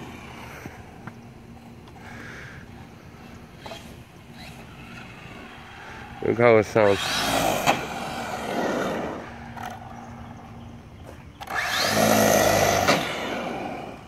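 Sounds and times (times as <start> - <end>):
electric motor whining: 3.5 - 10.1, 11.4 - 14.0.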